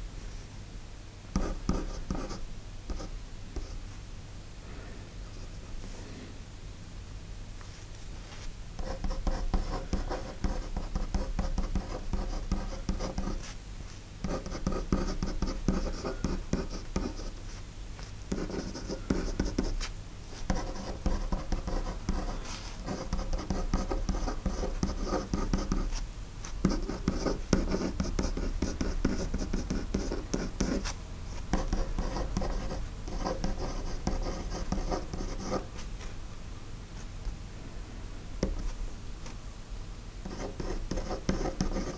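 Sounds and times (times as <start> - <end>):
pen scratching on paper: 1.4 - 3.7, 8.8 - 13.6, 14.2 - 17.4, 18.3 - 35.8, 40.2 - 41.9.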